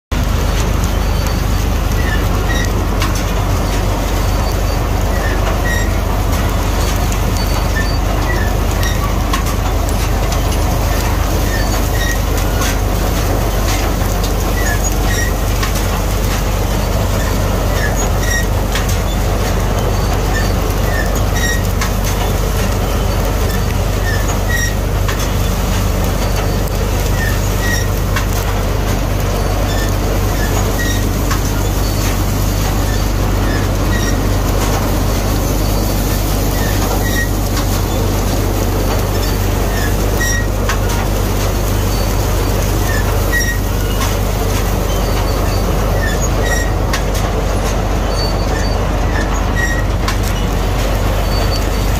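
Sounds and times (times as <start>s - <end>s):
combine harvester engine drone: 0.0s - 51.9s
threshing machinery rattling: 0.1s - 51.9s
short high squeaks: 0.5s - 28.5s, 29.2s - 51.9s.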